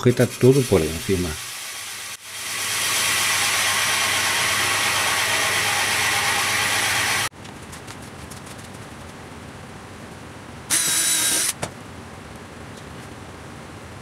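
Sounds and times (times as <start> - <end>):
hole saw cutting wood: 2.3 - 7.3.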